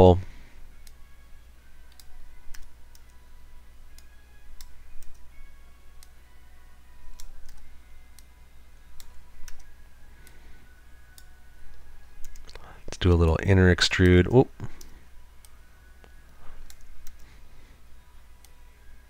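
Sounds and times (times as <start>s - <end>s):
faint steady hum: 0.0s - 19.0s
mouse and keyboard clicks: 7.1s - 7.7s, 12.2s - 12.6s, 16.6s - 17.3s.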